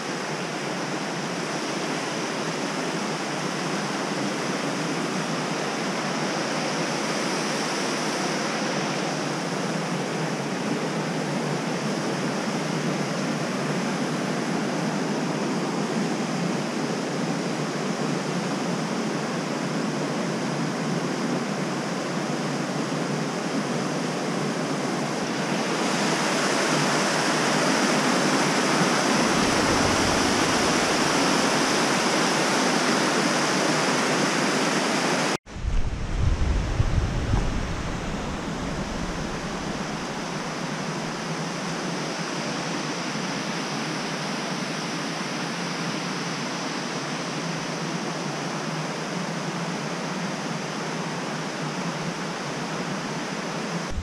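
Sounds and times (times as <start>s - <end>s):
river rushing over rocks: 25.4s - 35.4s, 36.0s - 41.3s
low rumble: 29.2s - 31.7s, 35.5s - 40.6s.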